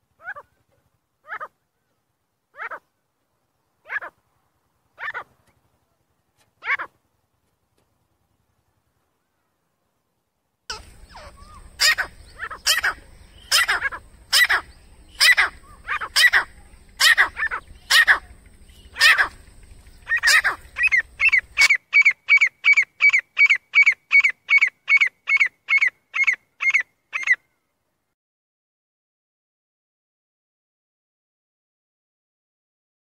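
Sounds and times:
francolin calling: 10.7s - 27.5s.

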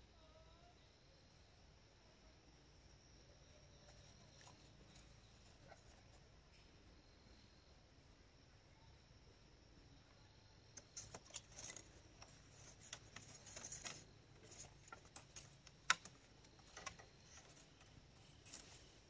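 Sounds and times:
bamboo strips clicking: 10.8s - 18.8s
rustling of bamboo strips: 10.8s - 19.0s.

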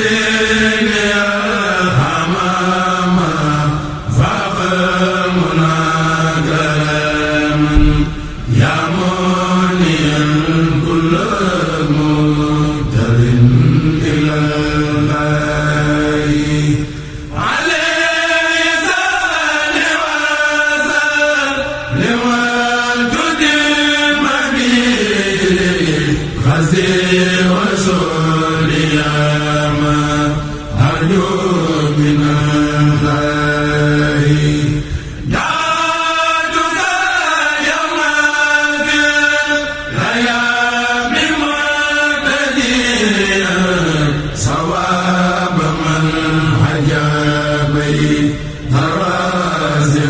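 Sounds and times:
men chanting in unison: 0.0s - 50.0s
singers breathing: 16.8s - 17.4s, 34.7s - 35.3s, 48.3s - 48.7s.

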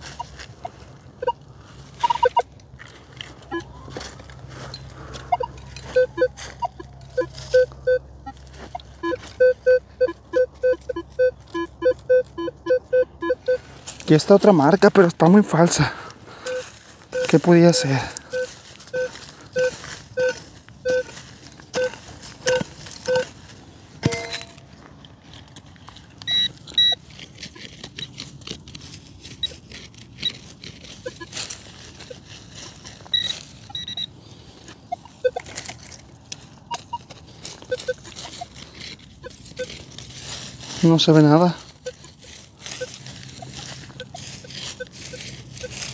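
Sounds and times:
metal detector beeping: 0.0s - 2.5s, 3.4s - 4.0s, 4.6s - 15.3s, 16.3s - 23.4s, 24.0s - 24.7s, 26.2s - 27.0s, 29.3s - 29.6s, 30.2s - 35.7s, 36.6s - 45.9s
light clicks and scrapes: 24.6s - 33.8s.

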